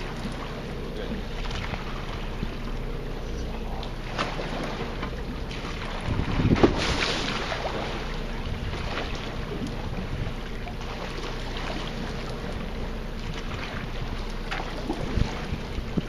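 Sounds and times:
low rumble: 0.0 - 16.0
wind noise: 6.0 - 7.3.

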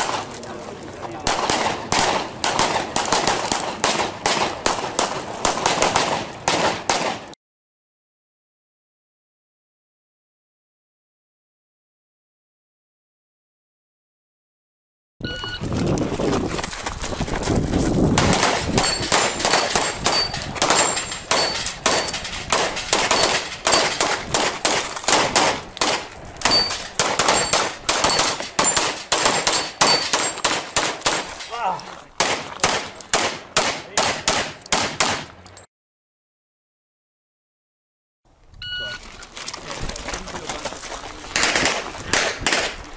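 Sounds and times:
rapid pistol fire: 1.3 - 7.3, 18.1 - 31.3, 32.2 - 35.3, 41.4 - 42.8
pings of steel targets hit: 18.2 - 31.5.

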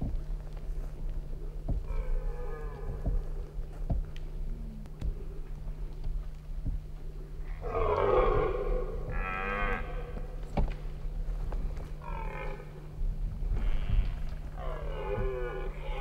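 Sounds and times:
red deer stag roaring: 7.5 - 10.2, 12.0 - 12.7, 13.6 - 16.0.

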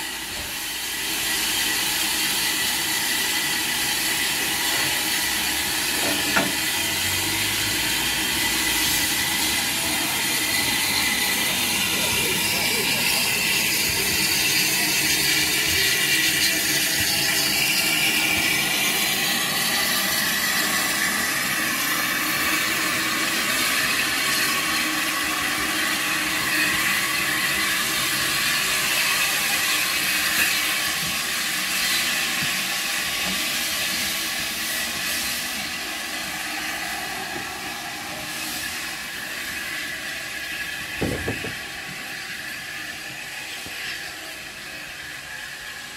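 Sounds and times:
steam locomotive hissing: 0.0 - 45.9.

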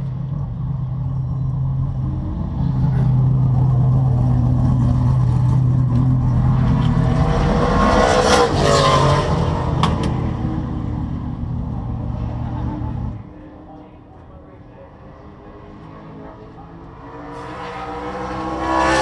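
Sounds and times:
race car engine idling: 0.0 - 7.0, 9.8 - 15.6.

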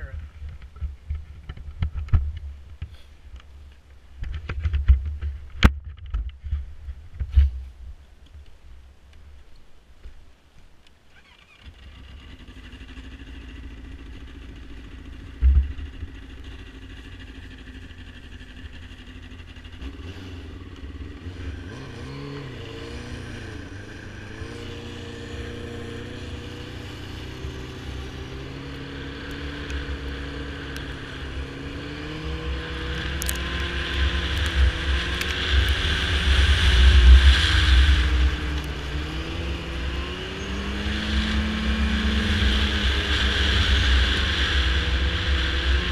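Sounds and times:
snowmobile engine running: 11.9 - 45.9.

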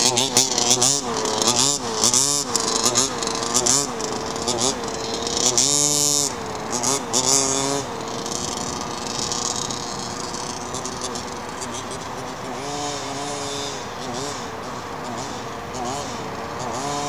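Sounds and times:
rc buggy engine revving: 0.0 - 17.0.

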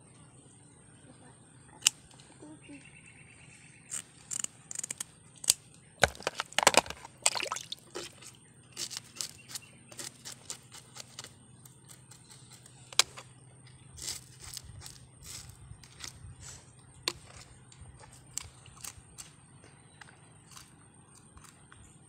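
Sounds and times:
fish scales being scraped: 7.9 - 13.2, 14.0 - 16.2.

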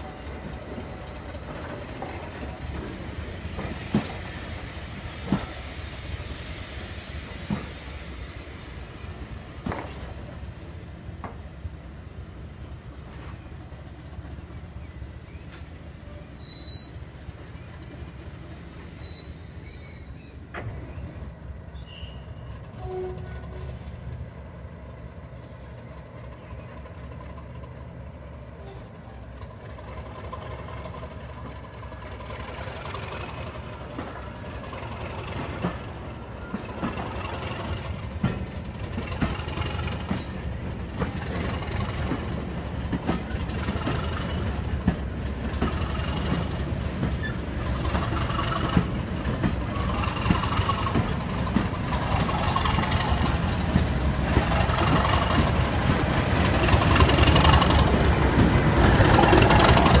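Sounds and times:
diesel locomotive engine running: 0.0 - 60.0
wheels clicking on rails: 29.3 - 60.0.

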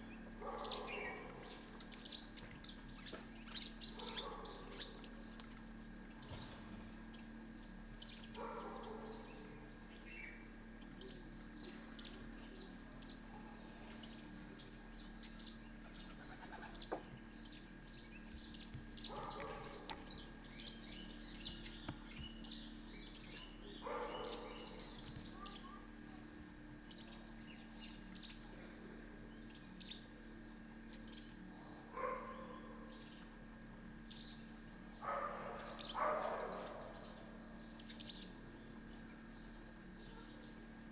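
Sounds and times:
lower bird calls: 0.0 - 5.4
birds chirping: 0.0 - 25.9, 34.0 - 38.7.

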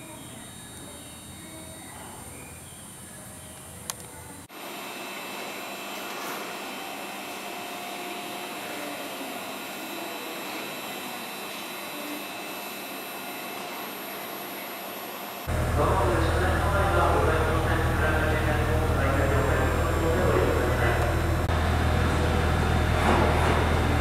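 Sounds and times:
faint steady tones: 0.0 - 5.6
whooshing machinery noise: 11.8 - 24.0.

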